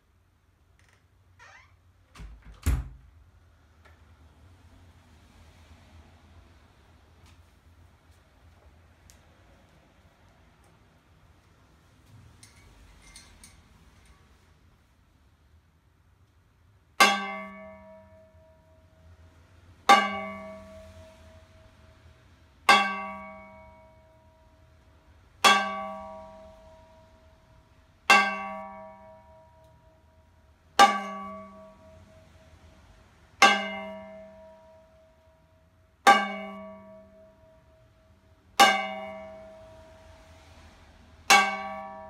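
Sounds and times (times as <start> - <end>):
stick striking a metal frying pan: 17.0 - 18.7, 19.9 - 21.8, 22.7 - 24.2, 25.4 - 27.1, 28.1 - 30.0, 30.8 - 32.3, 33.4 - 35.0, 36.1 - 37.9, 38.6 - 40.1, 41.3 - 42.0.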